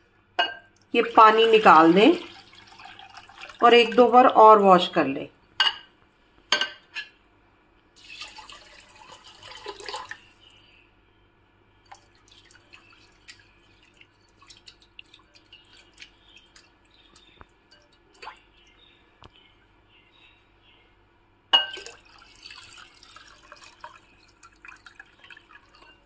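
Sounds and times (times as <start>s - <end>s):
water pouring into a glass bowl: 1.0s - 4.2s, 8.0s - 10.6s, 11.9s - 18.6s, 21.7s - 26.0s.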